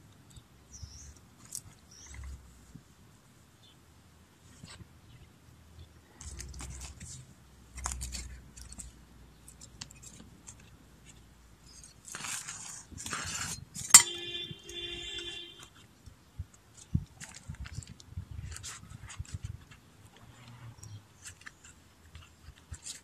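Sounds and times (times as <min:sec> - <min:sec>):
hands scraping gritty soil: 0:09.6 - 0:14.0.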